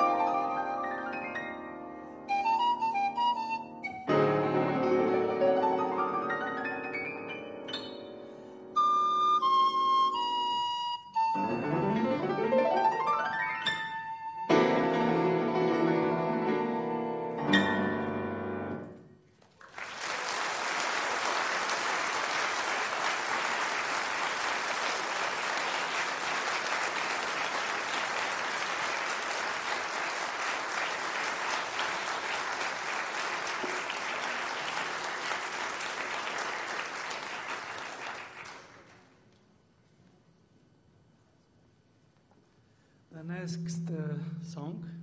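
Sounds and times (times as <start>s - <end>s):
pan flute and piano: 0.0s - 18.9s
audience applauding: 19.3s - 39.2s.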